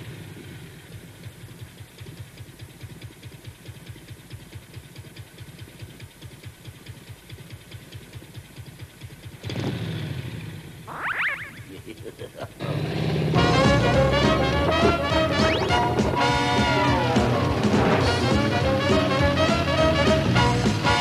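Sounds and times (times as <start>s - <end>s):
cartoon engine puttering: 10.8s - 19.5s.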